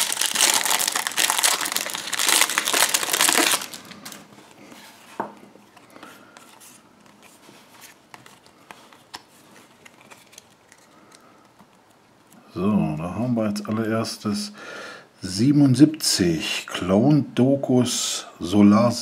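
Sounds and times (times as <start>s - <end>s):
foil pack crinkling and tearing: 0.0s - 4.3s
cardboard cards clicking and rustling: 6.4s - 12.0s.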